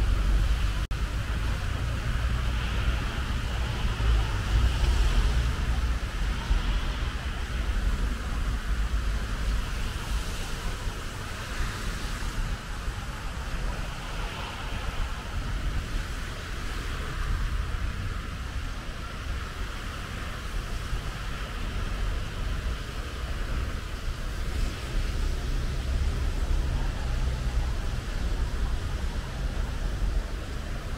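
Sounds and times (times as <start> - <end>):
bus passing: 0.0 - 18.5
cars passing on wet road: 0.0 - 30.9
low traffic rumble: 0.0 - 30.9.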